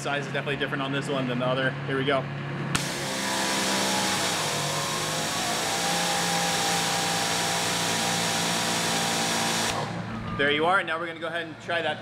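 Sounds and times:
pressure washer motor hum: 0:02.8 - 0:10.1.

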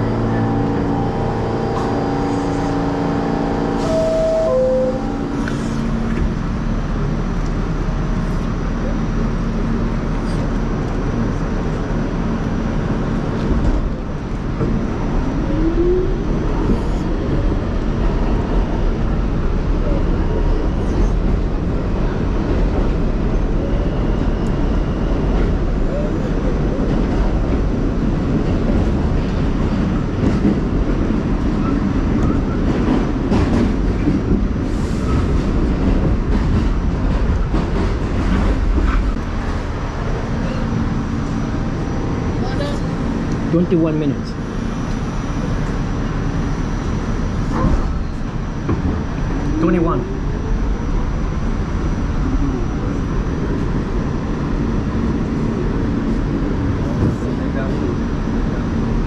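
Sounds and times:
subway train wheels rumbling on rails: 0:00.0 - 0:59.0.

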